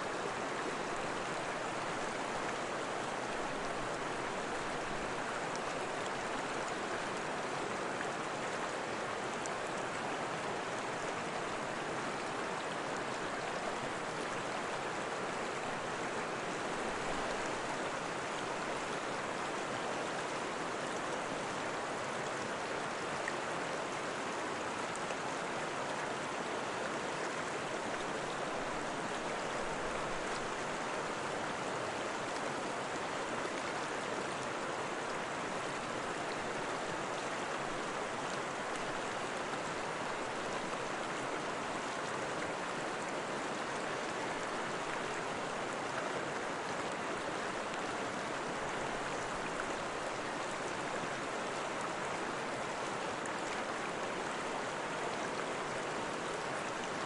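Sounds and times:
stream water rushing: 0:00.0 - 0:57.0.

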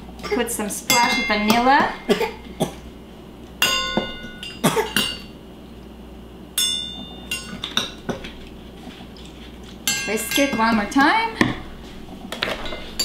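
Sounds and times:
metal spoon clinking on cups: 0:09.9 - 0:10.8.

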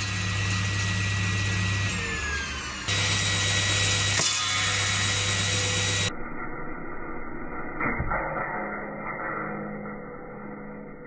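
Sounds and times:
circular saw motor humming and whining: 0:00.0 - 0:06.2.

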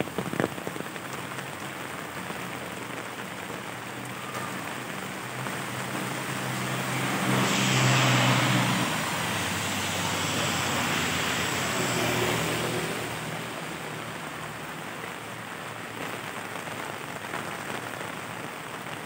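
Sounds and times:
rain falling on pavement: 0:00.0 - 0:19.0
car engine hum: 0:00.6 - 0:15.7
tyres hissing through water: 0:03.3 - 0:14.9.

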